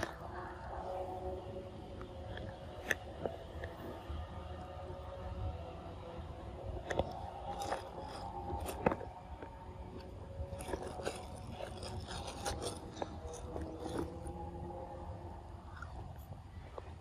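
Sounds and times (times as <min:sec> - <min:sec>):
monkey chewing food: 0:00.0 - 0:04.2, 0:06.8 - 0:14.4, 0:15.7 - 0:16.8.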